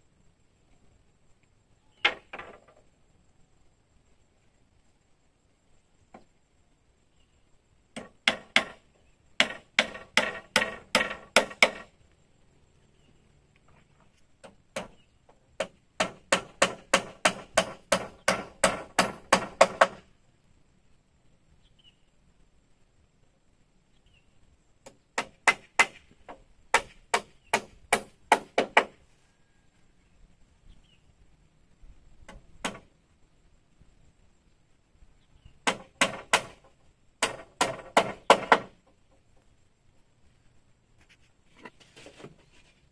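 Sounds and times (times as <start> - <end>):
hand tool striking wood: 8.0 - 8.8, 9.4 - 11.9, 14.4 - 20.0, 24.8 - 29.0, 32.3 - 32.9, 35.6 - 38.8.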